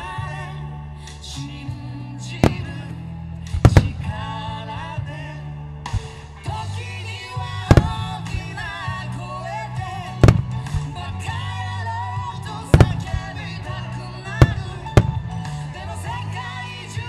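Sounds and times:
pop song with singing: 0:00.0 - 0:17.0
firework bangs: 0:02.4 - 0:04.4, 0:07.6 - 0:08.8, 0:10.1 - 0:11.0, 0:12.7 - 0:13.5, 0:14.4 - 0:15.7.

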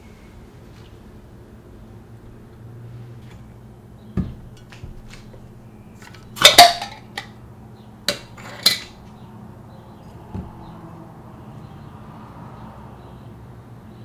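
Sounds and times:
soft thud: 0:04.2 - 0:05.0, 0:10.3 - 0:10.6
metal lid clattering on glass: 0:06.0 - 0:07.4, 0:08.1 - 0:09.0.

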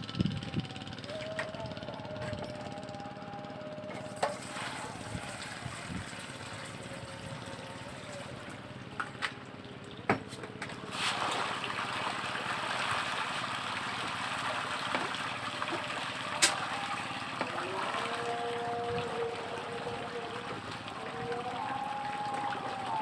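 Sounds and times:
fish splashing at the surface: 0:04.3 - 0:05.7, 0:10.8 - 0:23.0.

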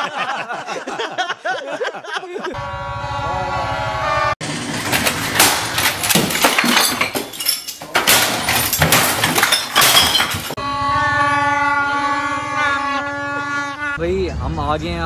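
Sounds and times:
glass objects crashing and breaking: 0:04.6 - 0:10.6
plastic toy horns blowing: 0:10.5 - 0:14.0.

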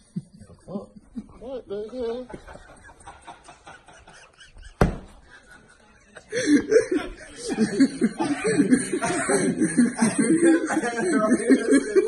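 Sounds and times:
person laughing hard: 0:00.3 - 0:05.6, 0:06.2 - 0:12.0
sharp thump: 0:04.8 - 0:05.2.

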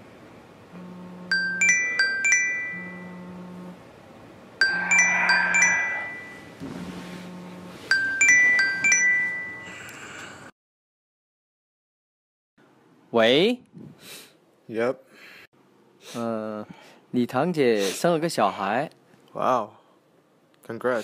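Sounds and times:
phone vibration buzzing: 0:00.7 - 0:01.6, 0:02.7 - 0:03.8, 0:04.6 - 0:07.8
chime-like phone ringtone: 0:01.3 - 0:03.2, 0:04.6 - 0:06.6, 0:07.9 - 0:09.9.

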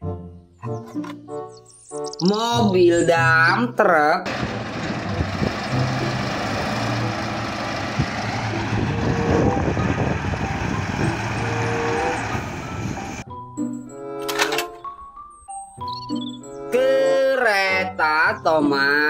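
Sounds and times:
diesel truck engine running: 0:04.3 - 0:13.2.

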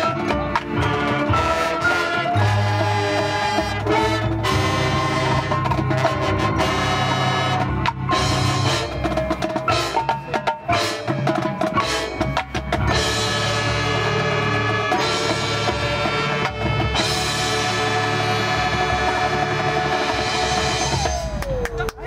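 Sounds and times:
marching band playing: 0:00.0 - 0:22.0
drum and percussion hits: 0:07.5 - 0:14.3.

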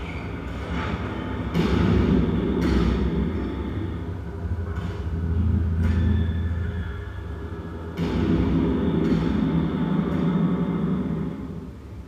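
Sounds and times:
low rumbling electronic texture: 0:00.0 - 0:12.0
sharp percussive hits: 0:00.5 - 0:06.2, 0:07.7 - 0:11.6.

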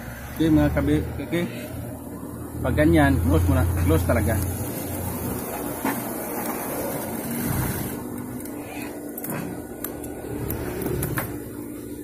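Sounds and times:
sewing machine motor humming: 0:06.7 - 0:11.5.

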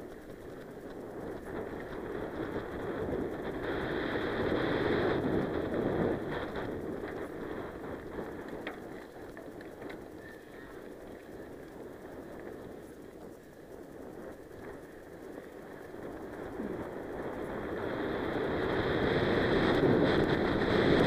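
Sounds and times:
bike clicks and rattles: 0:00.0 - 0:21.0
wind rushing over microphone: 0:00.0 - 0:21.0.

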